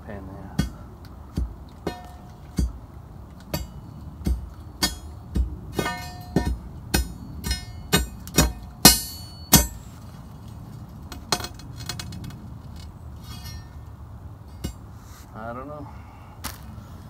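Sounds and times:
metal striking metal: 1.4s - 2.8s, 3.4s - 9.9s, 13.2s - 13.8s.

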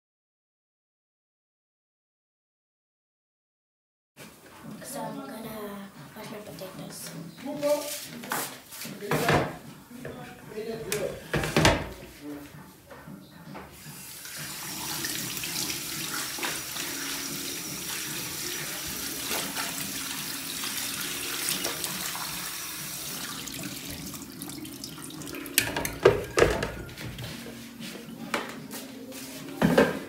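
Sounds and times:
tap water splashing into sink: 14.2s - 26.8s.

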